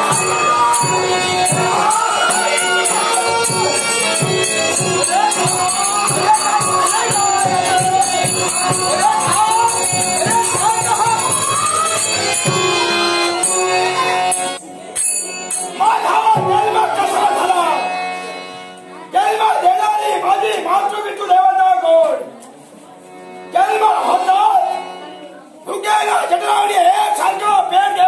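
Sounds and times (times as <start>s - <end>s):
drum beat: 0.0s - 13.1s
person singing: 0.0s - 13.2s
jingling metal percussion: 0.0s - 16.6s.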